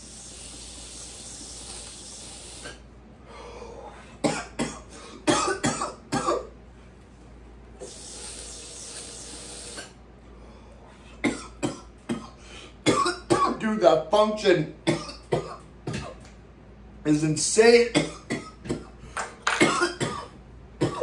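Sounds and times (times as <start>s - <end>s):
long breathy hiss: 0.0s - 2.8s
man coughing hard: 4.2s - 6.5s, 11.2s - 13.6s, 14.8s - 16.2s, 17.9s - 21.0s.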